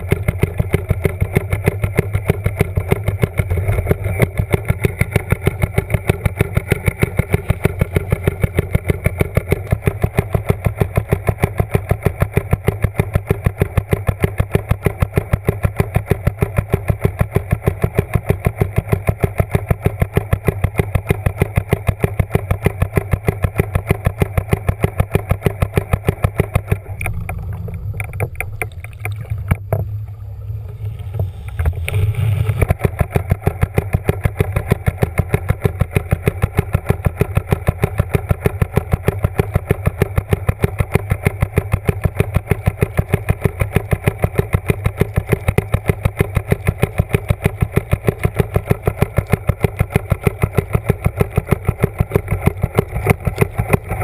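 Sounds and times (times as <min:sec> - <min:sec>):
motor running underwater: 0:00.0 - 0:54.0.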